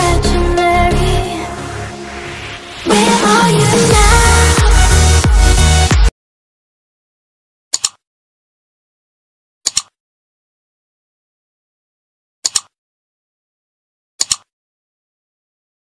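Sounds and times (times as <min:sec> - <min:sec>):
computer mouse clicks: 0:07.7 - 0:08.0, 0:09.7 - 0:10.0, 0:12.4 - 0:12.8, 0:14.2 - 0:14.5.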